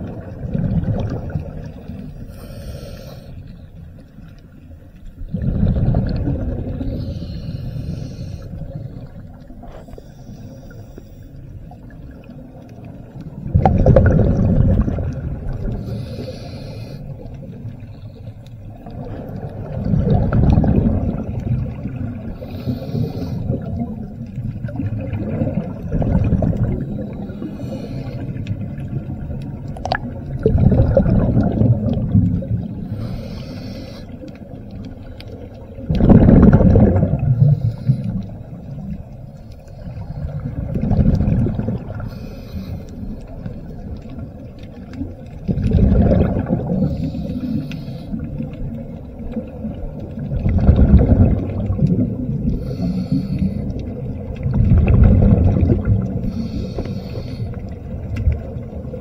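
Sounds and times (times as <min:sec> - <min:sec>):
muffled water rushing: 0:00.0 - 0:59.0
hiss: 0:02.2 - 0:03.4, 0:06.8 - 0:08.6, 0:15.8 - 0:17.1, 0:22.4 - 0:23.6, 0:27.3 - 0:28.4, 0:32.9 - 0:34.2, 0:46.9 - 0:48.3, 0:52.6 - 0:53.7, 0:56.3 - 0:57.6.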